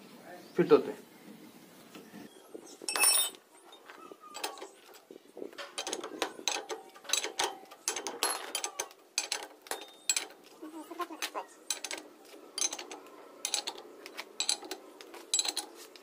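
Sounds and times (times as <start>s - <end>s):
spanner clinking on metal nut: 2.9s - 3.8s, 5.6s - 10.4s, 11.7s - 16.0s.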